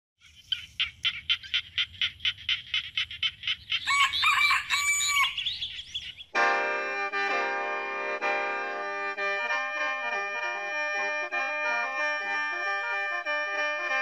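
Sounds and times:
rooster crowing: 0:03.8 - 0:05.7
mouth organ reedy chord: 0:06.2 - 0:14.0.

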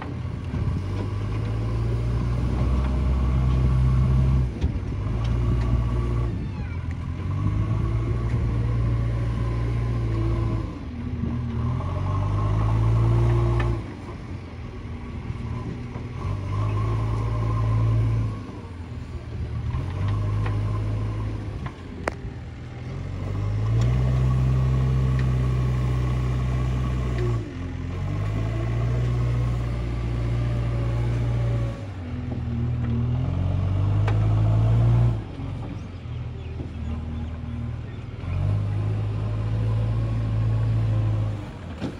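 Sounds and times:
diesel engine revving under load: 0:00.0 - 0:41.9.

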